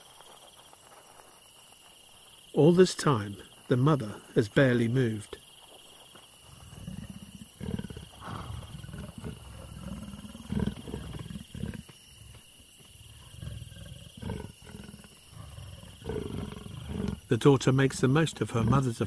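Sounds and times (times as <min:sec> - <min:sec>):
leopards rumbling calls: 0:06.4 - 0:19.0.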